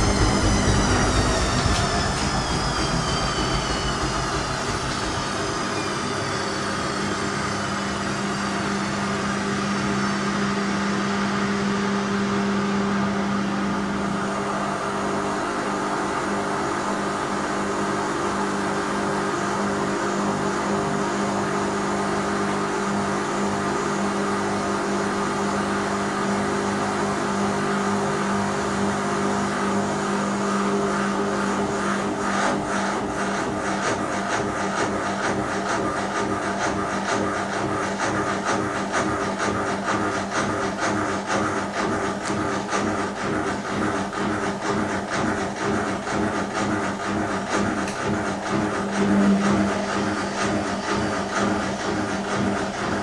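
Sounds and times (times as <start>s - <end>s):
high whine: 0.0s - 17.4s
washing machine motor hum: 0.0s - 53.0s.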